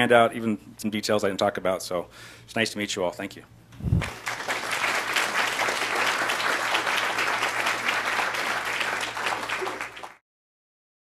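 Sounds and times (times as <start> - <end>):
audience applauding: 4.0 - 10.2.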